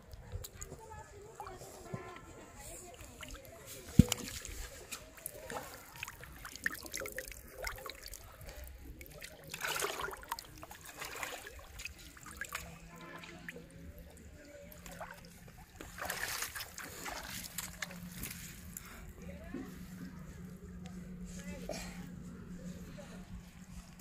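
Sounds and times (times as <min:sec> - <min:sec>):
water splashing and trickling: 0:00.0 - 0:20.5
fish thrashing in water: 0:02.9 - 0:18.7.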